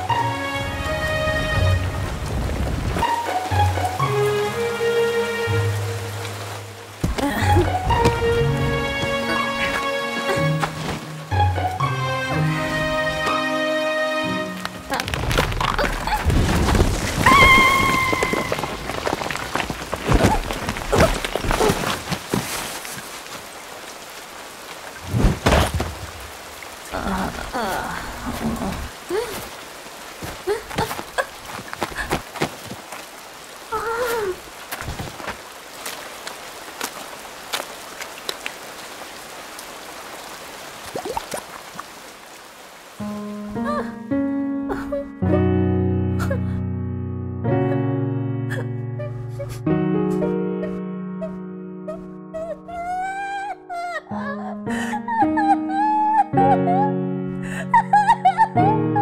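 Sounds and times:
sustained music notes: 0.0 - 14.9
heavy rain falling: 0.0 - 44.1.

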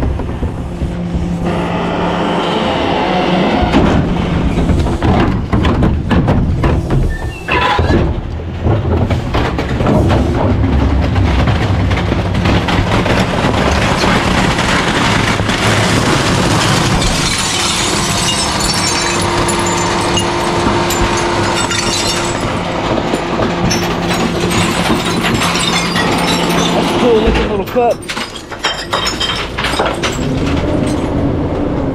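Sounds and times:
ceramic dishes crunching: 13.5 - 30.0.

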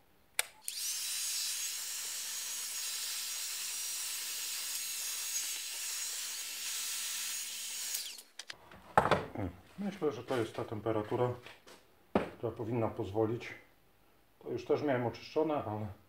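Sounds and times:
heat gun blowing air: 0.6 - 8.3.

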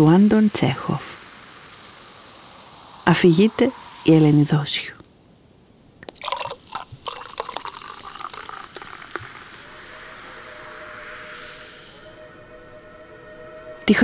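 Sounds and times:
fizzing hiss: 0.0 - 12.8
liquid pouring into glass: 6.0 - 11.6
quiet music: 7.5 - 14.0.

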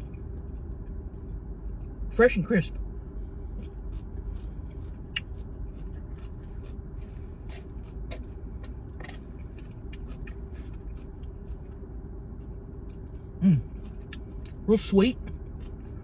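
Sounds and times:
chewing: 3.4 - 16.0.

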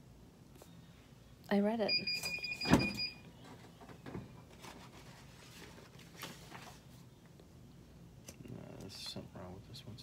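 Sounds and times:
paper rustling and scraping: 4.5 - 7.0.

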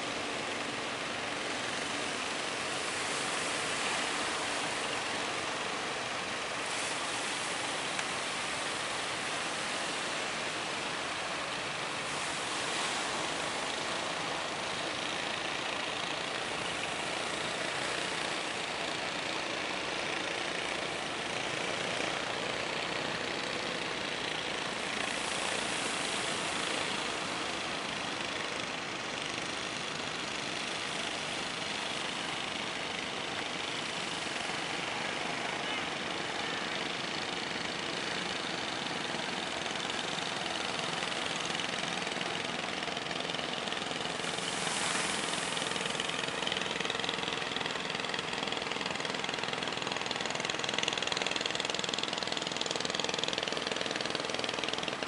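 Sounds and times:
wind: 0.0 - 55.0
boat engine running: 33.5 - 54.9.

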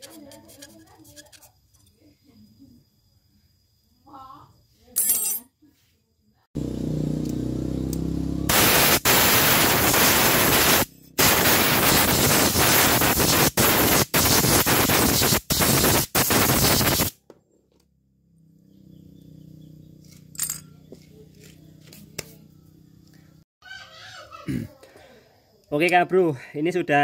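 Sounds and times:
compressed air blasts: 8.5 - 17.2.

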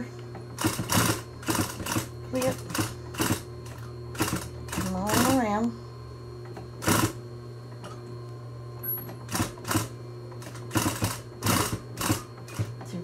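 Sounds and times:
sewing machine motor humming: 0.0 - 5.8, 6.4 - 7.2, 8.8 - 13.0
sewing machine stitching: 0.6 - 3.5, 4.2 - 5.4, 6.8 - 7.2, 9.3 - 12.7.

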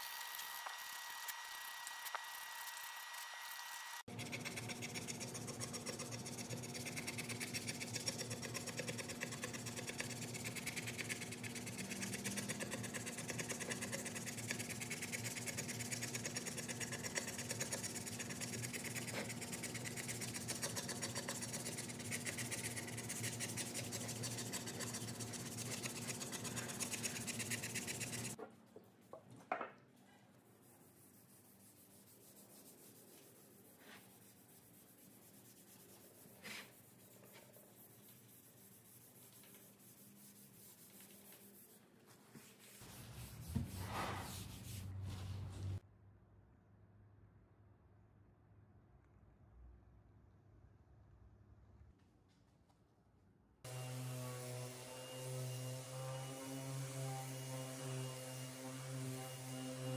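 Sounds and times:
scrub pad scrubbing wet wood: 5.1 - 28.4, 42.4 - 45.8.

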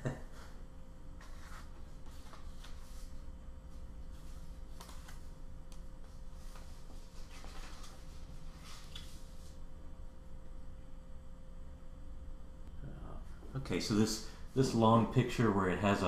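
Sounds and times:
faint room hum: 0.0 - 16.0
paper rustling: 1.2 - 3.2, 4.1 - 5.4, 6.1 - 9.6.

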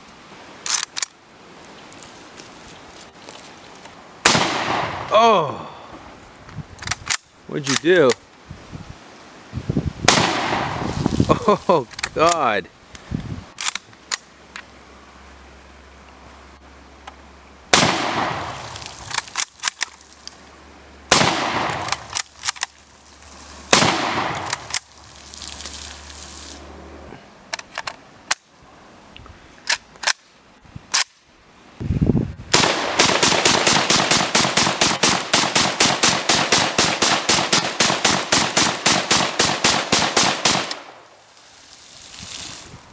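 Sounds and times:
rifle bolt clicks: 0.6 - 1.2, 6.8 - 8.2, 13.6 - 14.7, 29.6 - 30.3
automatic rifle firing: 4.2 - 5.1, 10.1 - 10.8, 17.7 - 18.8, 21.1 - 22.2, 23.7 - 24.7, 32.5 - 41.0
rifle shots: 4.2 - 5.1, 10.1 - 10.9, 17.7 - 19.4, 21.1 - 22.3, 23.7 - 24.9, 32.5 - 41.0.

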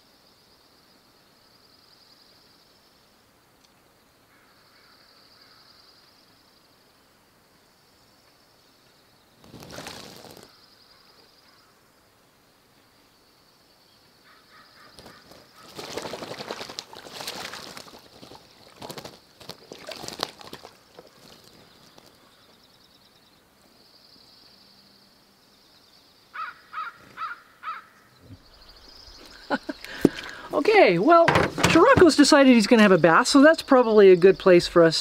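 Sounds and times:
bird splashing water: 9.5 - 10.5, 14.9 - 22.3, 29.2 - 32.4
bird calling: 14.2 - 22.6, 26.4 - 32.3.

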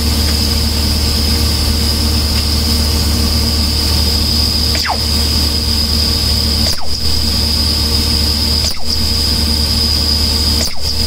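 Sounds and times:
low engine drone: 0.0 - 11.0
high-pitched steady whistle: 3.6 - 11.0.

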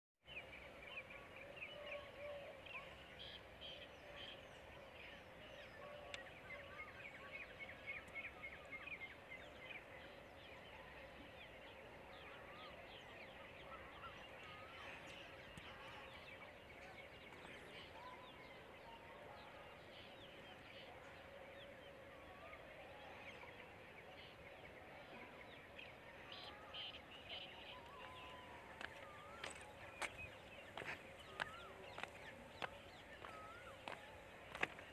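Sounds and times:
birds chirping: 23.3 - 34.9.

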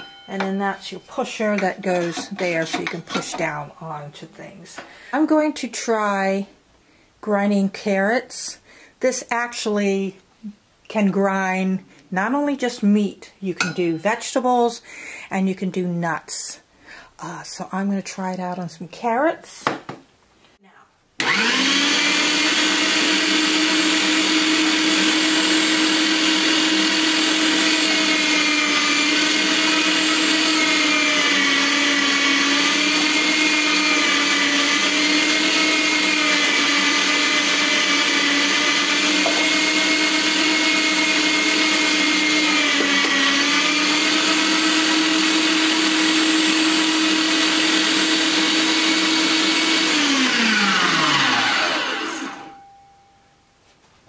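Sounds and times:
meat grinder motor whining: 21.2 - 52.5.

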